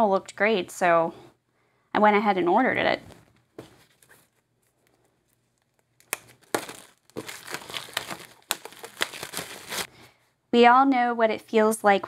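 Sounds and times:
soft handling sounds: 3.0 - 10.0
plastic wrap crinkling and tearing: 3.9 - 9.9.

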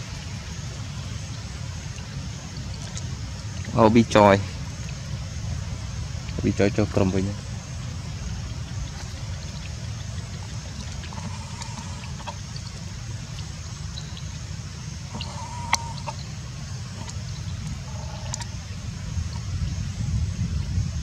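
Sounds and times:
steady low rumble: 0.0 - 21.0
brief animal calls: 15.1 - 16.2, 17.0 - 18.6.

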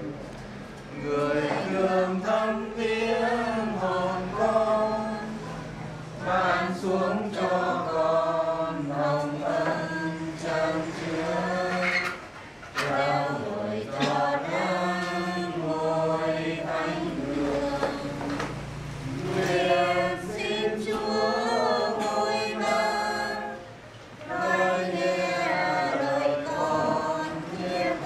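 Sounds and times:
choir singing a hymn: 0.9 - 28.0.

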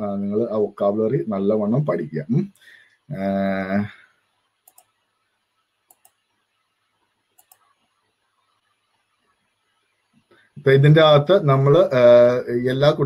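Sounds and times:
computer mouse clicking: 4.6 - 5.0, 5.8 - 6.3, 7.3 - 8.0.

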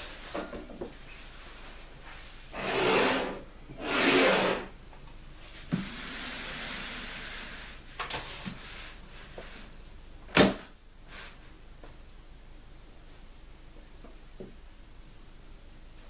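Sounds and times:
suitcase scraping on wooden desk: 2.5 - 4.7.

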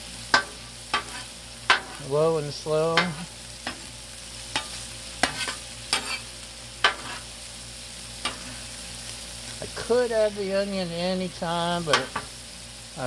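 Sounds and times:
food sizzling on griddle: 0.0 - 13.0
metal spatula scraping on griddle: 0.2 - 7.5, 8.1 - 9.9, 11.5 - 12.4.

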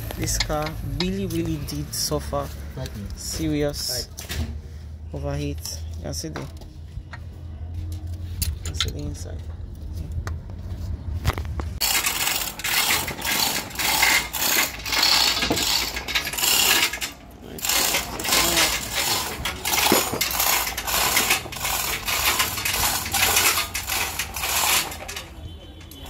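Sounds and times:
hoist chain rattling and clinking: 11.8 - 26.0.

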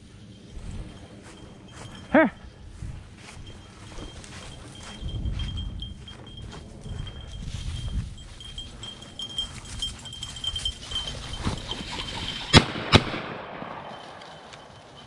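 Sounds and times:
dog collar bell jingling: 0.0 - 12.6, 13.7 - 15.0
shotgun shots: 12.5 - 13.9.

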